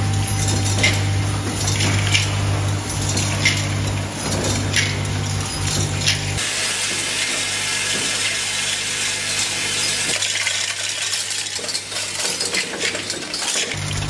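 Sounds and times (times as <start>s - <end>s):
low machine hum: 0.0s - 10.0s, 13.8s - 14.0s
tablets rattling on metal trays: 0.0s - 14.0s.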